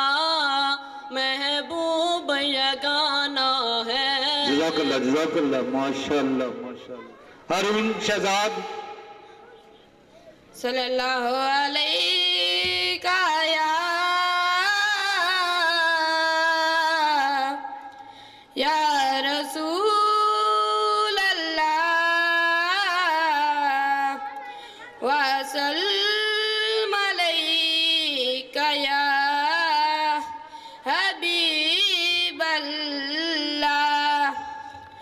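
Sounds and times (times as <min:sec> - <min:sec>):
boy singing into a microphone: 0:00.0 - 0:04.9, 0:10.5 - 0:35.0.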